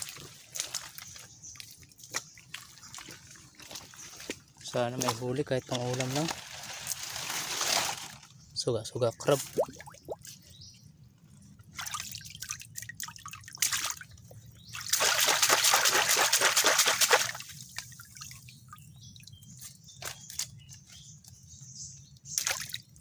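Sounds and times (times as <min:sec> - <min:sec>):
water dripping and trickling: 0:00.0 - 0:07.3, 0:09.2 - 0:23.0
water pouring and splashing: 0:00.0 - 0:08.3, 0:11.6 - 0:20.5, 0:22.2 - 0:23.0.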